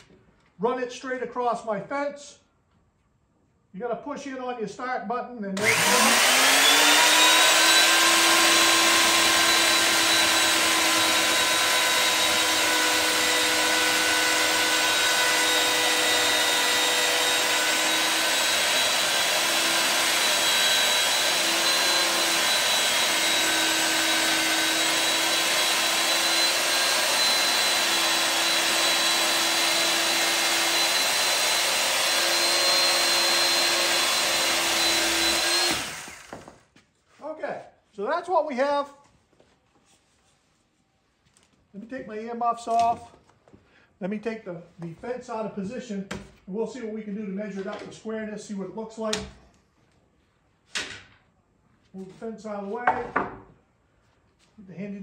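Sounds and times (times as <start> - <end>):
chain saw cutting timber: 5.6 - 36.6.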